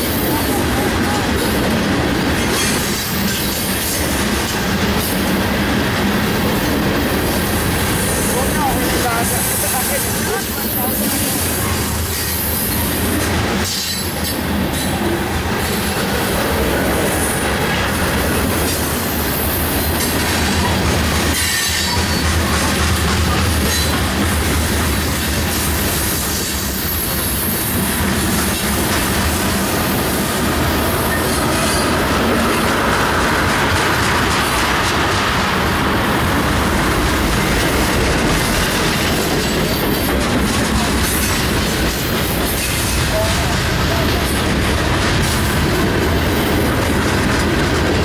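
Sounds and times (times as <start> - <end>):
steel train wheels on rails: 0.0 - 48.0.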